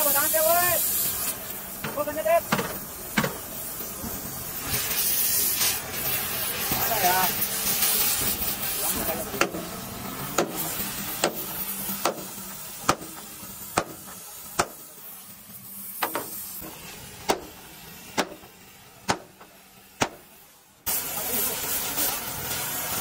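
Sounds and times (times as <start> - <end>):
background hiss: 0.0 - 23.0
hammer striking metal: 10.4 - 14.8, 16.0 - 17.6, 18.2 - 18.5, 19.1 - 20.3.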